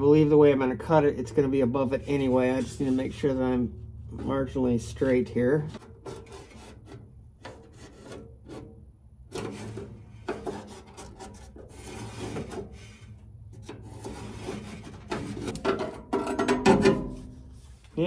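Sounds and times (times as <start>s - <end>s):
marker scratching on metal: 6.0s - 13.0s.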